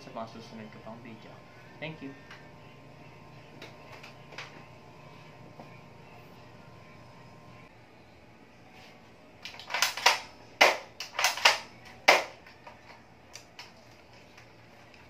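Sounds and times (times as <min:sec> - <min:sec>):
airsoft rifle clacks and snaps: 0:09.4 - 0:14.5.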